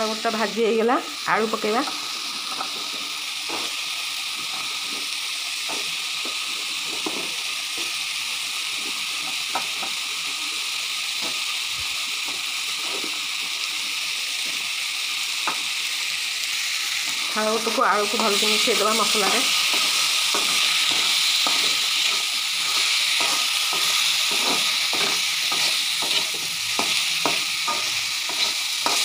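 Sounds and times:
food sizzling in hot oil: 0.0 - 29.0
wooden spatula knocking and scraping pan: 4.4 - 7.9, 19.0 - 29.0.

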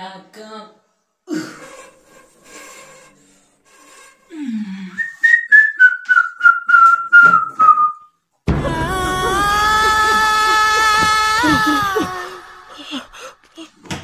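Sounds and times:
whistle sliding down in pitch: 5.0 - 8.1.

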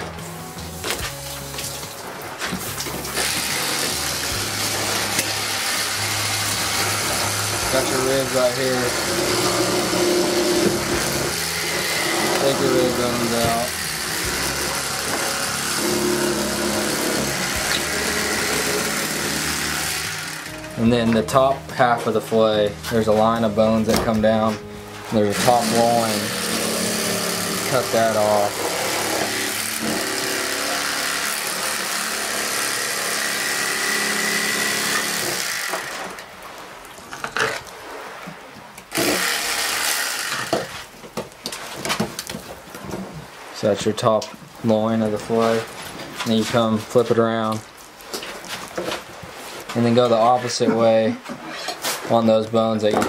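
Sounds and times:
motor humming: 8.8 - 20.7.

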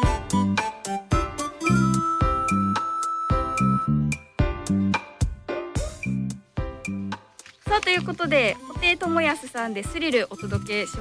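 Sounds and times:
music with quick beat: 5.2 - 11.0.

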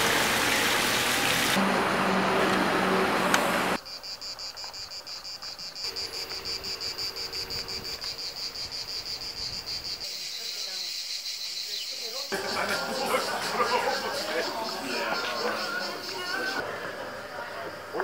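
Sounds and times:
street noise with low hum: 0.0 - 10.0, 12.3 - 18.0
cicadas chirring: 3.8 - 16.6.

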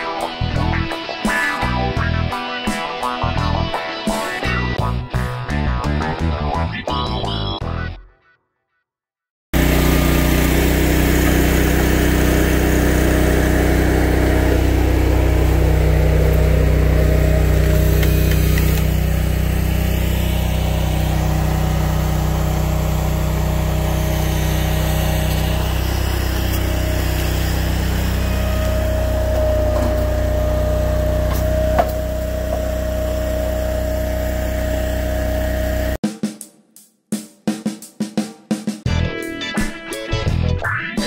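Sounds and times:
small engine running: 9.6 - 36.0.

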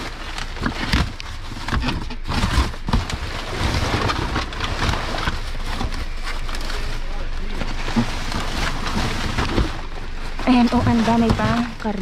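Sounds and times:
plastic bags and boxes rustling: 0.0 - 12.0
dull thumps: 7.7 - 12.0.

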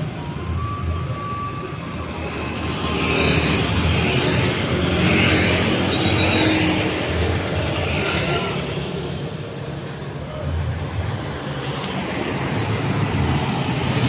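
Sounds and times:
motorcycles and scooters passing: 2.1 - 9.5.

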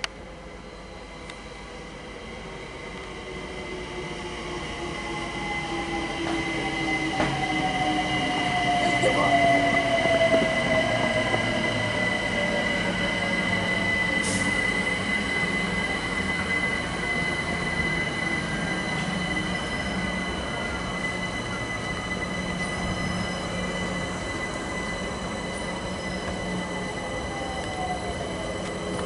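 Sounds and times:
electric train running: 0.2 - 29.0
high-pitched squeal: 3.2 - 29.0.

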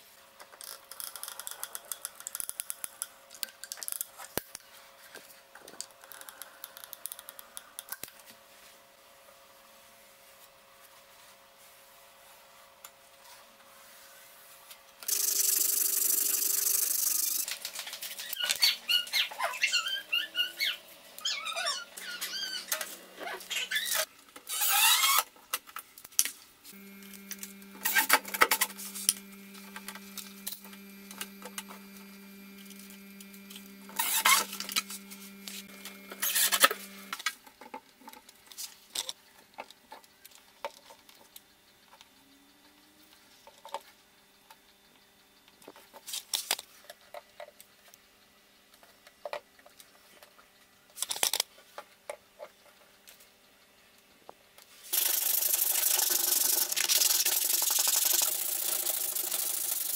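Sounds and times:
faint steady hum: 25.9 - 37.3.

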